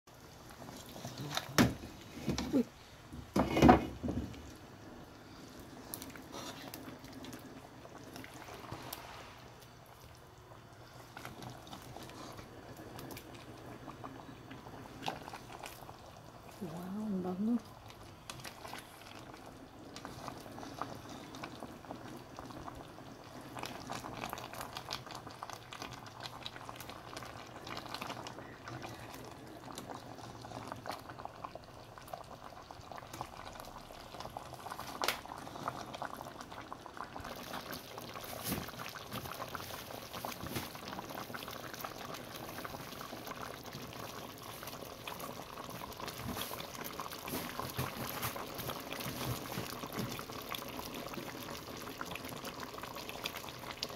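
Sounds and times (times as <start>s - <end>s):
curry boiling in a pot: 0.1s - 53.9s.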